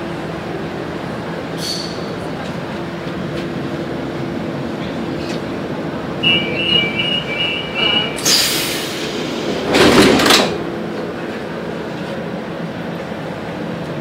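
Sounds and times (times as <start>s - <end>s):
subway equipment hum: 0.0s - 14.0s
two-tone warning beeps: 6.2s - 8.3s
compressed air hissing: 8.2s - 9.7s.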